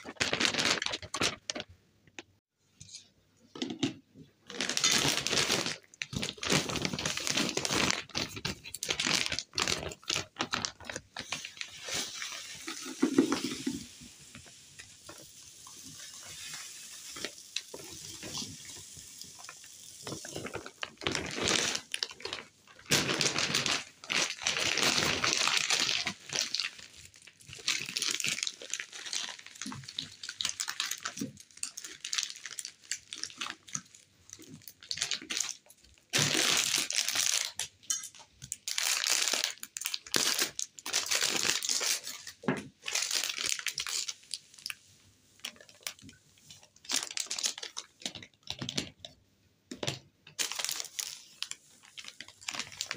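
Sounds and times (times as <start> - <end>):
plastic bag crinkling: 0.0 - 2.2, 4.5 - 44.8, 45.4 - 48.9, 49.8 - 52.9
powder pouring through funnel: 4.6 - 35.3.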